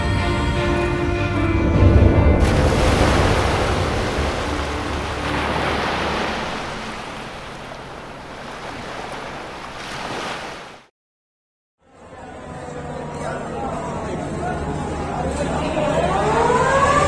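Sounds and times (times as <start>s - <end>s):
ocean surf washing ashore: 2.4s - 10.9s.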